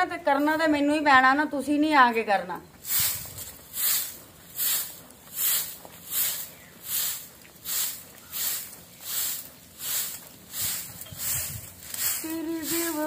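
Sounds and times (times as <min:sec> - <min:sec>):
grass broom sweeping dusty ground: 0:02.8 - 0:13.0.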